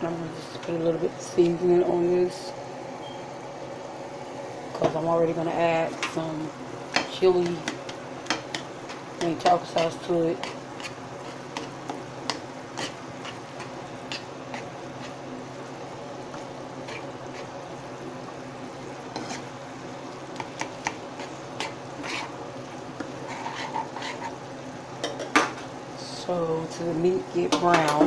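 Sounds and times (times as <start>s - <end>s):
meat sizzling in a frying pan: 6.6s - 26.0s.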